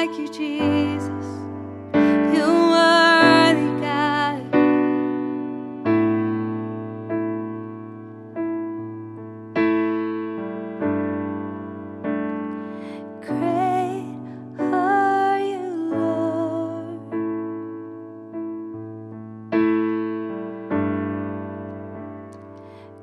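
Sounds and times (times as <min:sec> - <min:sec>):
woman singing: 0:00.0 - 0:04.8, 0:13.2 - 0:17.1
piano chords ringing: 0:00.0 - 0:23.0.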